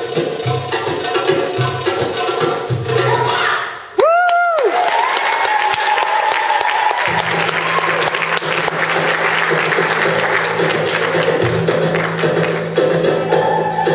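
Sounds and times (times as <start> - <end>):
music: 0.0 - 4.0, 6.9 - 13.9
audience applauding: 4.0 - 13.9.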